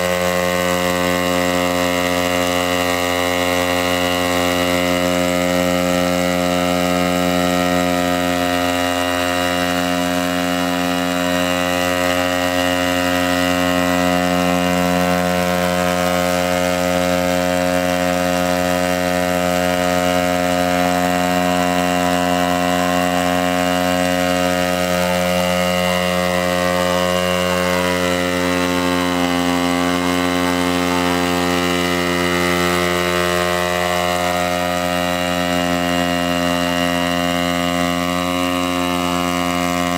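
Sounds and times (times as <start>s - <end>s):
drone engine and propellers: 0.0s - 39.9s.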